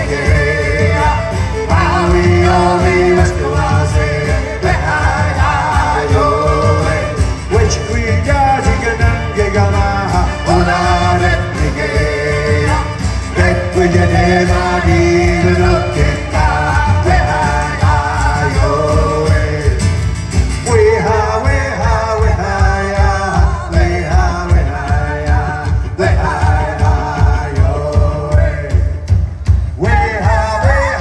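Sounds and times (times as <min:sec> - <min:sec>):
fiddle: 0:00.0 - 0:19.8
person singing: 0:00.0 - 0:20.0, 0:20.6 - 0:29.1, 0:29.8 - 0:31.0
acoustic guitar: 0:00.0 - 0:31.0
driving drum beat: 0:00.0 - 0:31.0.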